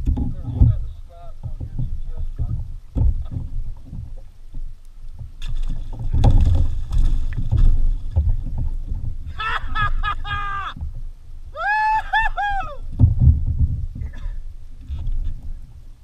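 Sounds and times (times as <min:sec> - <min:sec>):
wind rumble on microphone: 0:00.0 - 0:16.0
fish thrashing and splashing: 0:05.3 - 0:09.0
short high cries: 0:11.6 - 0:12.8.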